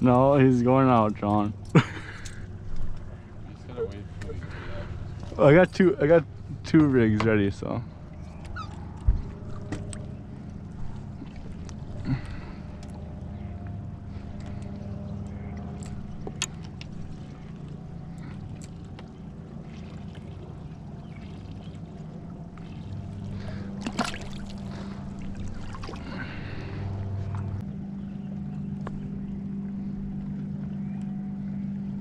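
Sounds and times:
outboard motor running: 0.0s - 32.0s
fish splashing into water: 22.6s - 26.8s.

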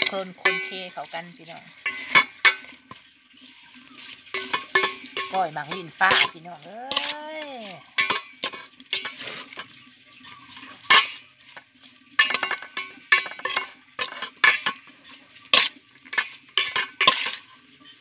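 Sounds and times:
metal bowl ringing: 0.0s - 1.0s, 4.3s - 9.2s, 12.2s - 14.7s
metal spoon scraping metal bowl: 0.0s - 18.0s.

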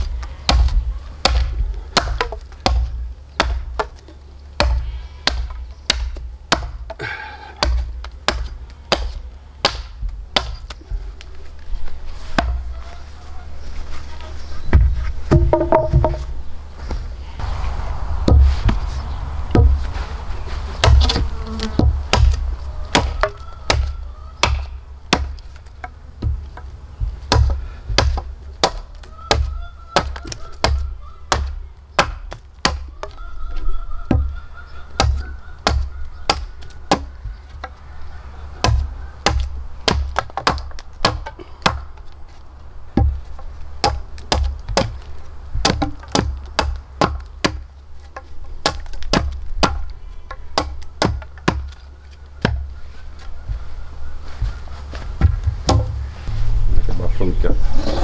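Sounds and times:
hand tool striking wood: 0.0s - 10.8s, 14.7s - 16.2s, 43.0s - 52.7s, 54.4s - 56.0s
insect buzzing: 17.2s - 22.9s.

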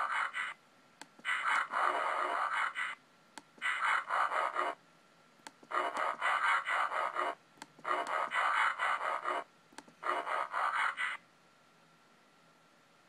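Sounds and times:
chattering mechanical sound effect: 3.6s - 4.8s, 5.7s - 11.2s.

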